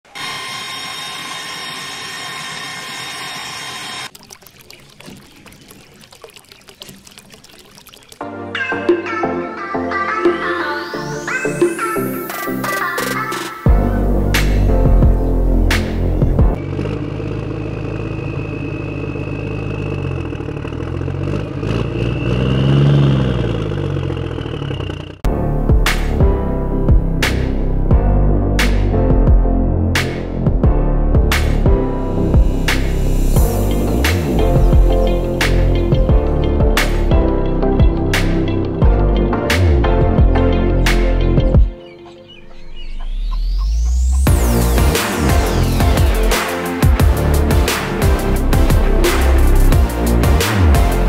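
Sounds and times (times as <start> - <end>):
small electric motor whine: 0.1 - 4.1
water trickling onto sand: 4.1 - 8.2.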